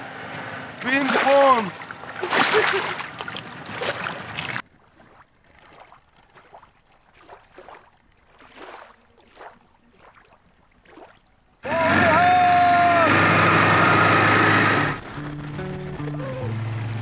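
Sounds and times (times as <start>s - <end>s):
soft water sounds: 0.8s - 11.6s
water splashing around raft: 0.8s - 17.0s
music: 15.0s - 17.0s.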